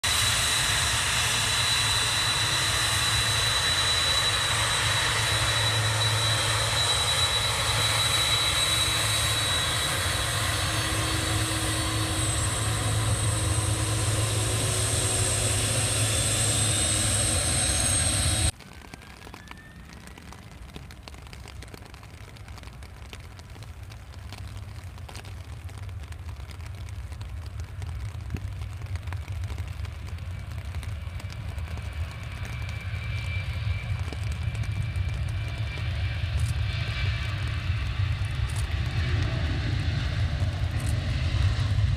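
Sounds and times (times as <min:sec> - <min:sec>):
jet engines whining: 0:00.0 - 0:18.6, 0:31.0 - 0:41.9.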